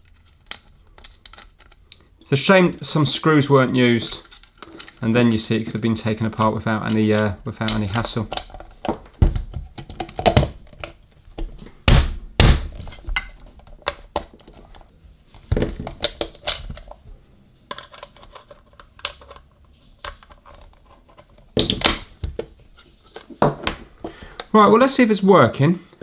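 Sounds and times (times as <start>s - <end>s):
plastic knocks and clicks: 6.2s - 14.8s.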